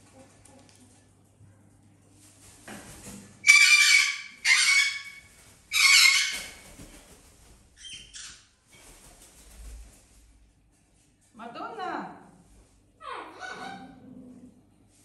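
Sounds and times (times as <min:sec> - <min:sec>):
parrot squawking: 0:03.4 - 0:06.6, 0:13.0 - 0:14.0.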